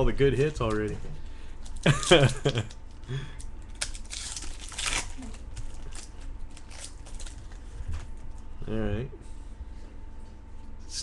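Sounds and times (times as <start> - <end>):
wrappers crinkling and tearing: 0.3 - 1.0, 1.6 - 8.5
cards being handled: 0.3 - 3.0.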